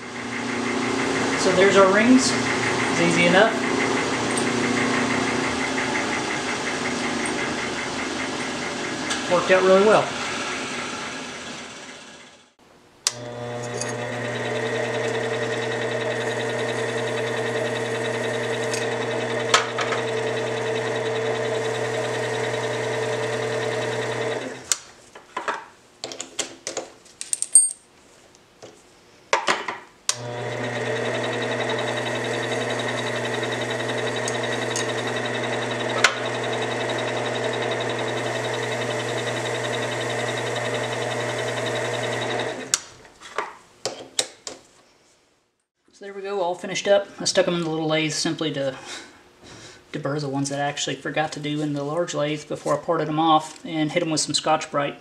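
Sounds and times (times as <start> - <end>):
lathe motor hum and whine: 0.0 - 12.4, 13.1 - 24.6, 30.1 - 42.8.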